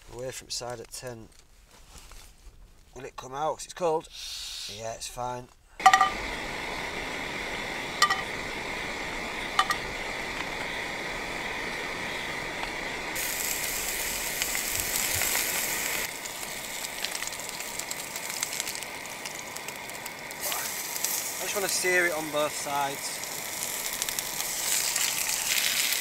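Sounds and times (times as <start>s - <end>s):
camping stove hissing: 4.0s - 5.0s, 5.8s - 26.0s
meat sizzling in a pan: 5.8s - 26.0s.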